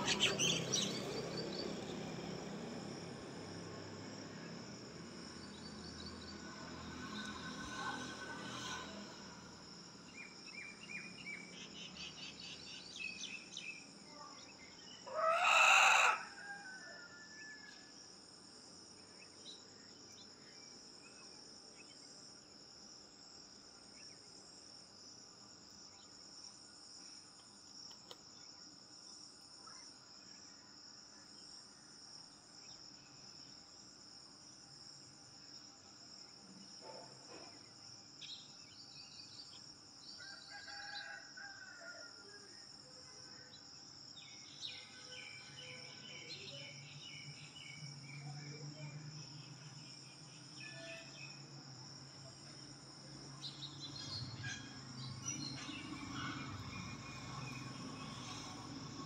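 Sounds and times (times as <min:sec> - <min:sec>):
small birds chirping: 0:00.0 - 0:01.9
insects droning: 0:00.0 - 0:59.0
rooster crowing: 0:15.0 - 0:17.9, 0:40.2 - 0:42.5.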